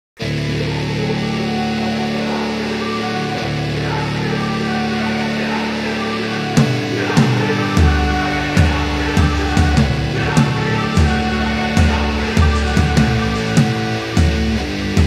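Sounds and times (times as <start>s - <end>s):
sustained guitar chords: 0.2s - 15.0s
drum hits: 6.6s - 14.6s.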